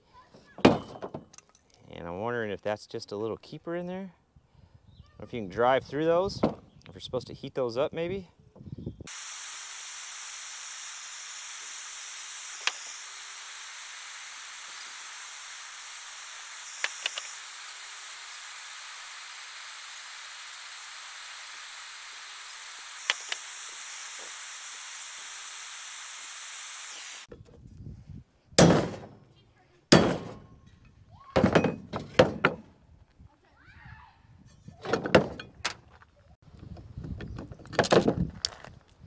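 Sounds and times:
gas torch hissing: 9.1s - 27.3s.

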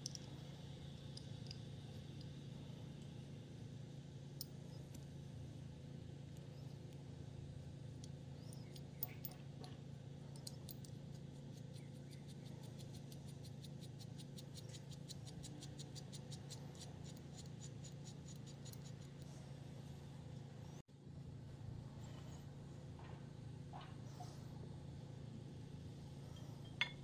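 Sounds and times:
small metal clicks: 0.0s - 2.4s, 10.3s - 19.3s
steady low hum: 0.0s - 27.0s
faint rapid ticks: 11.5s - 19.0s.

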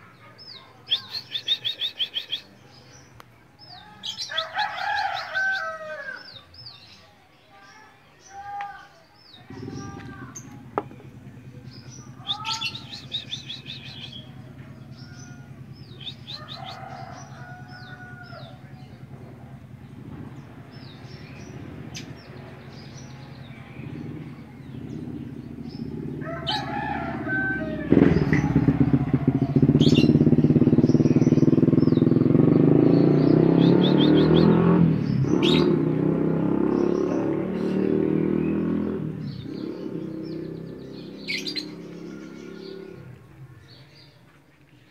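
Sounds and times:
finches chirping: 11.6s - 19.4s.

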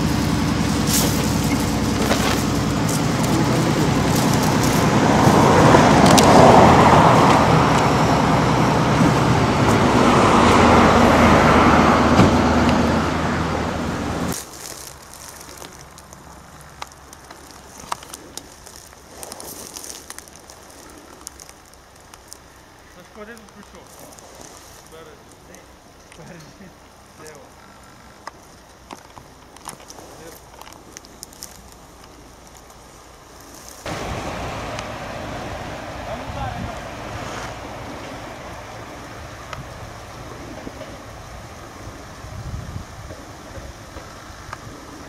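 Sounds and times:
faint rustling of grass: 0.0s - 7.9s, 14.3s - 45.0s
cars passing: 0.0s - 14.4s, 31.4s - 45.0s
vehicle engine running: 0.0s - 26.0s, 26.6s - 45.0s.

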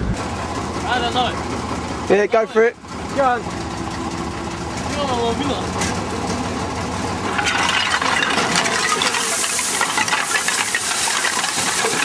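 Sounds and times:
soil and stones sliding off truck bed: 7.2s - 12.0s
stones clattering: 7.2s - 12.0s.

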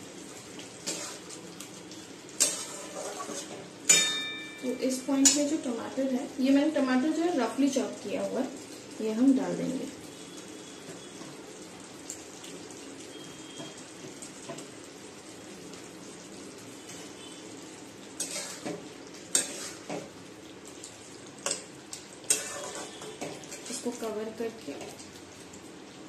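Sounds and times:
food sizzling in a wok: 0.0s - 26.0s
metal spatula scraping a wok: 0.8s - 1.4s, 2.4s - 4.0s, 18.2s - 20.1s, 22.2s - 23.8s.

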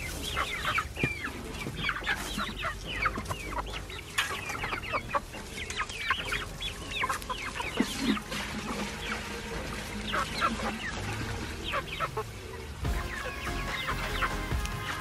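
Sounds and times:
young chickens chirping: 0.0s - 15.0s.

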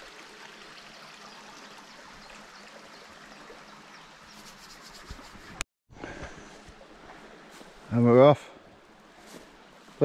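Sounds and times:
river flowing: 0.0s - 5.6s.

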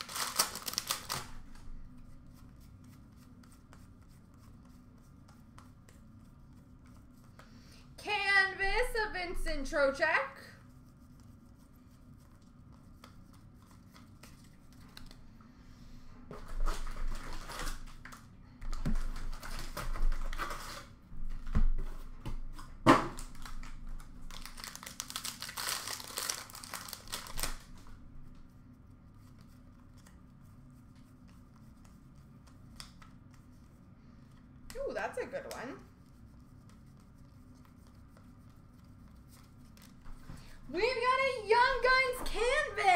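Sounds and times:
cards rustling: 0.0s - 1.4s, 23.4s - 27.7s
wrapper tearing and crinkling: 0.0s - 1.4s, 23.2s - 27.7s.

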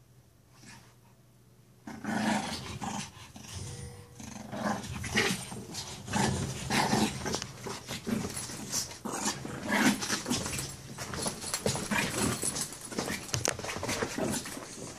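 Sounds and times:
puppy growling in play: 1.8s - 10.8s, 13.9s - 14.9s.

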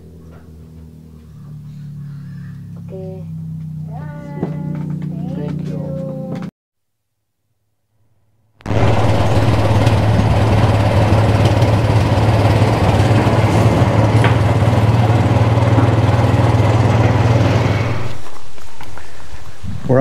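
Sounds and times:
vehicle engine cruising: 0.0s - 6.5s, 8.7s - 20.0s
road and rushing air noise: 8.7s - 19.8s.

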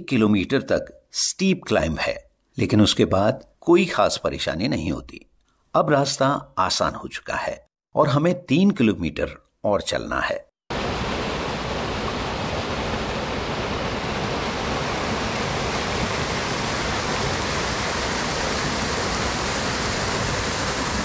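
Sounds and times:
fast mountain stream rushing: 10.7s - 21.0s.

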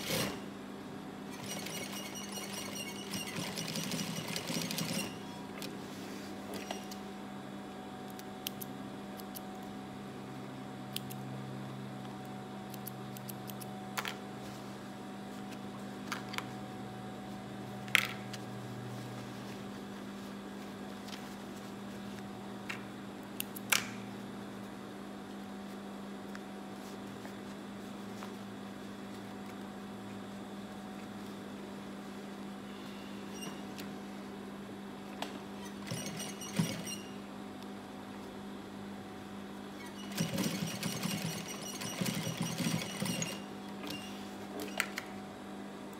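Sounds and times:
sewing machine motor humming: 1.3s - 5.2s, 39.8s - 44.0s.

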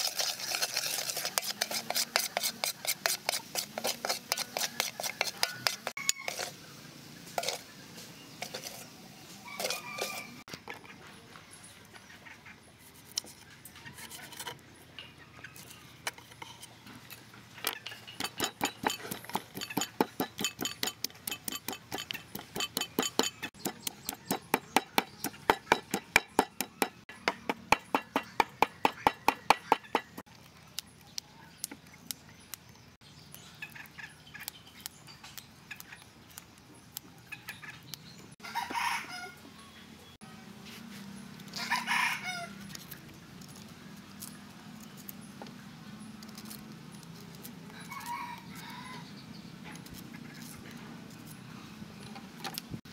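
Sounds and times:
rooster crowing: 9.4s - 10.4s, 38.4s - 39.4s, 41.6s - 42.6s, 47.8s - 49.1s
pestle pounding in mortar: 18.2s - 30.2s.

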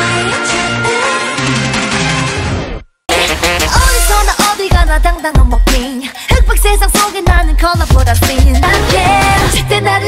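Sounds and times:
pop song with female vocals: 0.0s - 1.6s, 3.6s - 10.0s.

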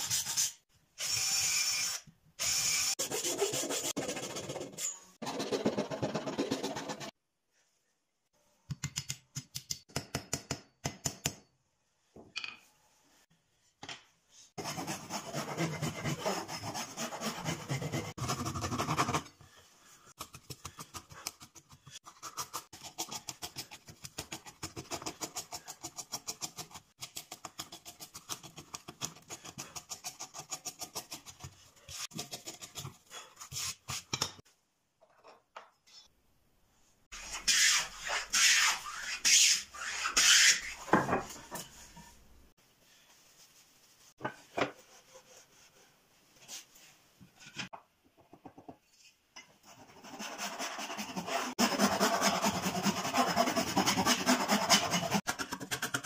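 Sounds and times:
scraping and rasping wood strokes: 14.6s - 19.3s, 49.9s - 56.0s.

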